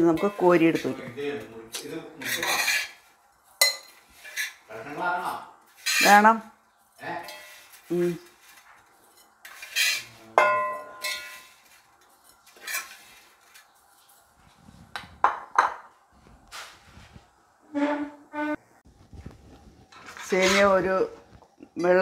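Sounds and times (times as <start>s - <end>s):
metal spoon scraping brass pot: 0.0s - 1.1s, 2.2s - 4.7s, 5.7s - 6.4s, 7.0s - 13.8s, 19.9s - 20.9s.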